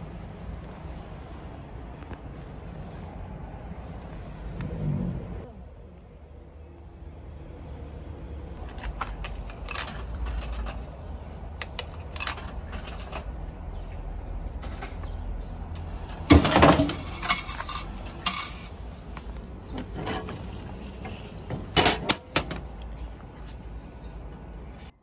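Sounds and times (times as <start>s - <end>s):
coins clinking into coin slot: 8.6s - 11.0s, 11.6s - 13.4s, 16.1s - 18.8s
vending machine clunk and rattle: 8.6s - 11.0s, 11.6s - 13.4s, 16.0s - 18.7s, 19.7s - 22.8s.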